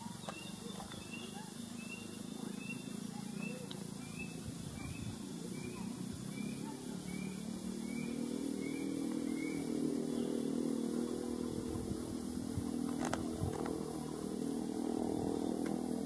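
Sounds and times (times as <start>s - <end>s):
bird chirping: 0.0s - 11.6s
motorcycle engine droning: 0.0s - 16.0s.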